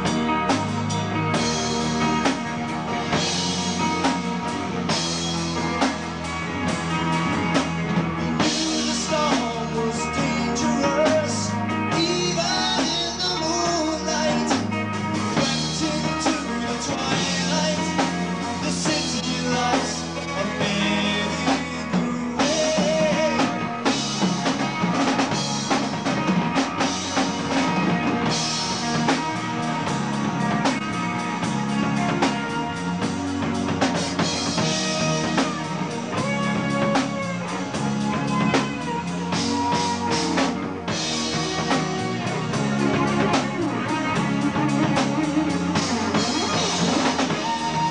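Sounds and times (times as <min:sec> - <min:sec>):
bass guitar: 0:00.0 - 0:47.9
drum kit: 0:00.0 - 0:47.9
electric guitar: 0:00.0 - 0:47.9.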